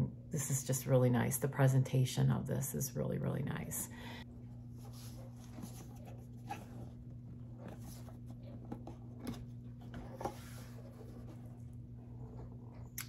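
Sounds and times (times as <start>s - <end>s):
low electrical hum: 0.0s - 13.0s
soft rustles: 4.6s - 12.8s.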